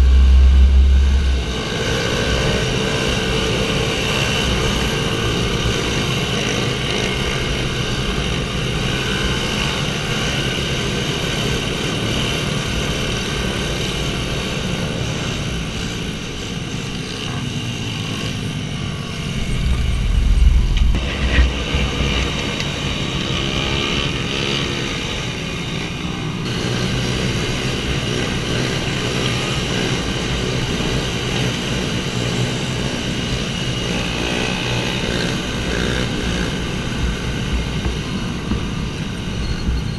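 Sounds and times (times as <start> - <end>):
loud low rumble: 0.0 - 2.5, 19.1 - 22.6
small motorbike engines revving: 0.0 - 20.1, 20.9 - 39.9.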